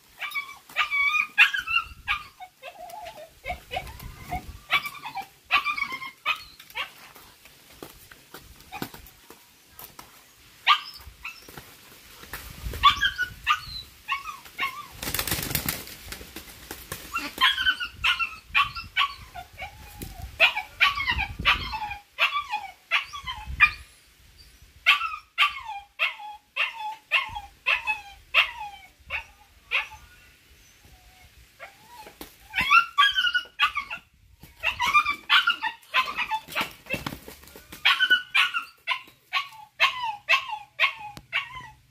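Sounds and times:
roosters wing-flapping: 2.8s - 6.0s, 6.6s - 10.4s, 11.0s - 13.0s, 14.4s - 17.8s, 32.0s - 33.0s, 34.4s - 38.4s.

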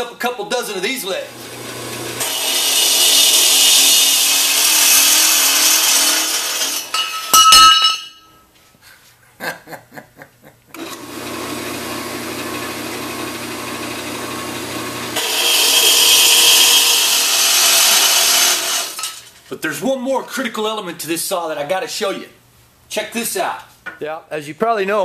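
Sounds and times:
band saw cutting steel: 0.8s - 7.3s, 10.8s - 19.2s
metal clanks: 6.9s - 8.3s.

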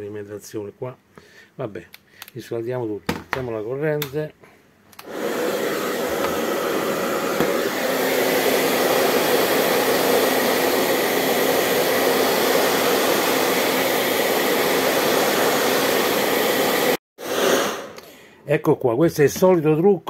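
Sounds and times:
hair dryer blowing: 5.0s - 18.1s.

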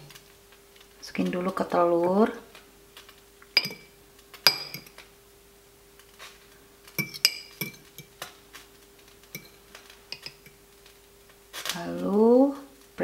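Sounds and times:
faint steady hum: 0.0s - 13.0s
metal fork clinking on ceramic bowl: 3.6s - 3.9s, 4.5s - 5.0s, 7.0s - 8.1s, 9.4s - 10.6s.

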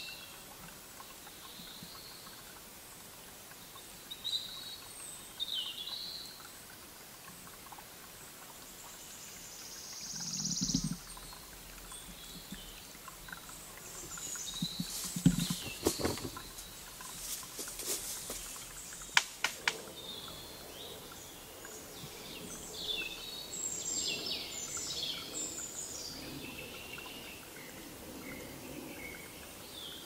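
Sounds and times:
bird calls: 10.1s - 19.2s.

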